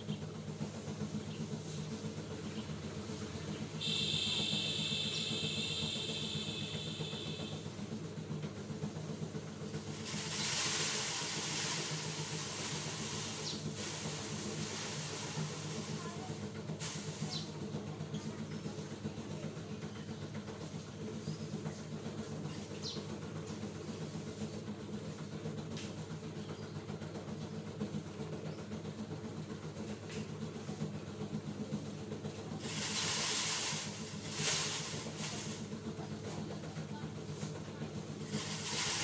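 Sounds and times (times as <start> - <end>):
engine humming steadily: 0.0 - 39.0
short hissing bursts: 3.1 - 7.7, 9.8 - 17.5, 32.6 - 35.7, 38.2 - 39.0.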